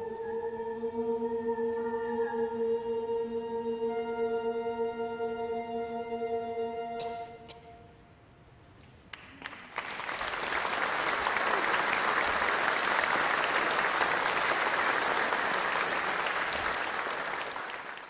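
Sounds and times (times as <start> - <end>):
audience applauding: 9.0 - 18.0.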